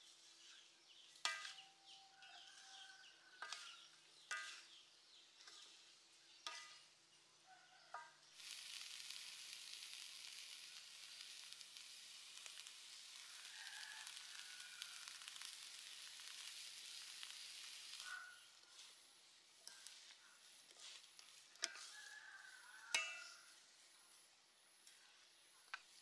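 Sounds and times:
prawns sizzling in a wok: 0.0s - 26.0s.

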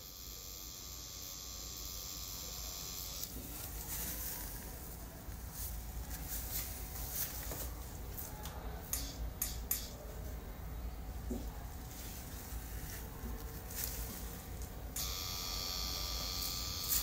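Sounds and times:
tattoo machine running: 0.0s - 3.4s, 15.0s - 17.0s.

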